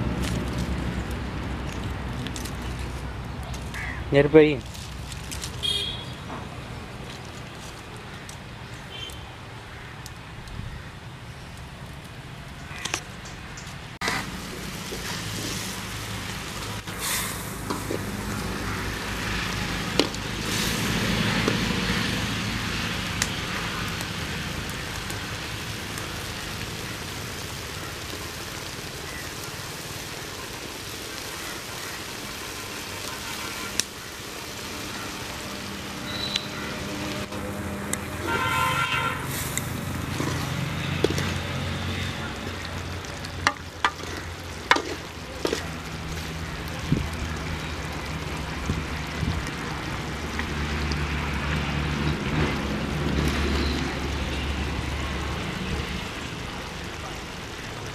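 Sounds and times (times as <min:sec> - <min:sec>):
short horn honk: 0:05.6 - 0:06.2, 0:38.2 - 0:39.5
pot bubbling: 0:14.0 - 0:57.9.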